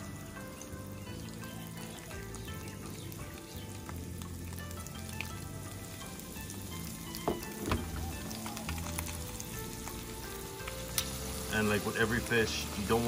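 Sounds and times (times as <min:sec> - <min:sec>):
fish sizzling in hot oil: 0:00.0 - 0:13.0
sharp knocks in pan: 0:07.2 - 0:08.4.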